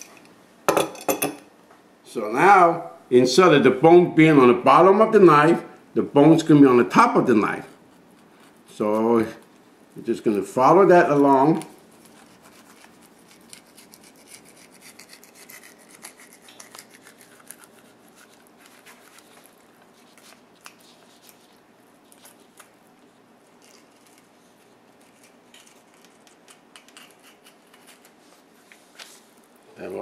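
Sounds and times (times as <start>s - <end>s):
knife scraping fish bones: 11.5s - 19.5s.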